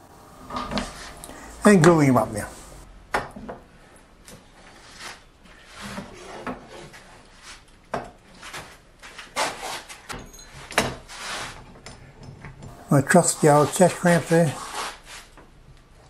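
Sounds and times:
wooden strips sliding on bench: 0.4s - 1.9s, 4.5s - 7.7s, 11.1s - 11.6s, 13.1s - 15.4s.

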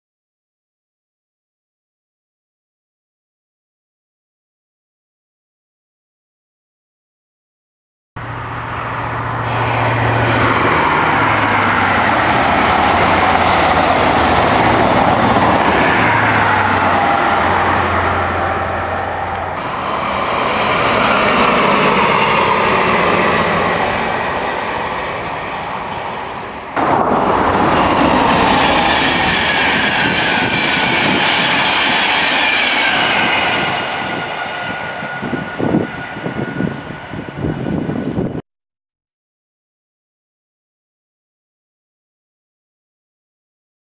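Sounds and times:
diesel engine hum: 8.2s - 32.8s
high steady train whine: 8.2s - 38.4s
rush of train wheels and air: 8.3s - 38.4s.

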